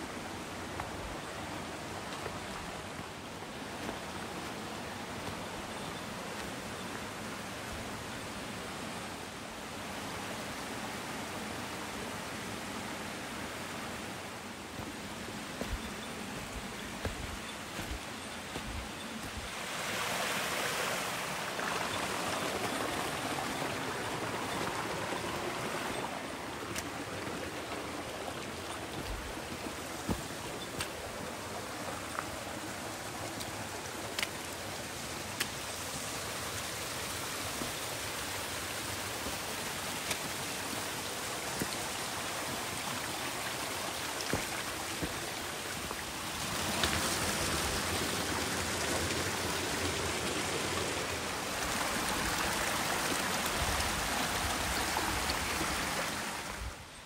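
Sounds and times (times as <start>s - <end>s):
mountain stream flowing: 0.0s - 57.0s.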